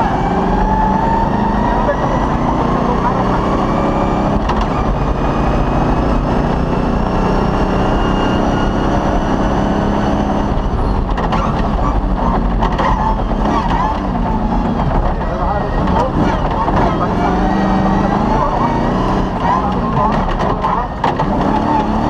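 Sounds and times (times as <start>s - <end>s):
car engine at high revs: 0.0s - 22.0s.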